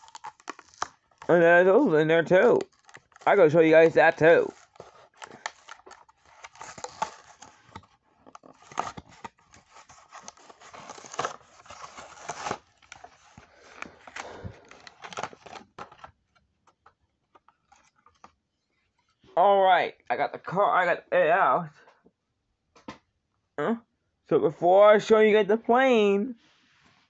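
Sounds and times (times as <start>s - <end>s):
plastic blister crackling: 0.0s - 16.0s
cardboard tearing: 0.0s - 16.1s.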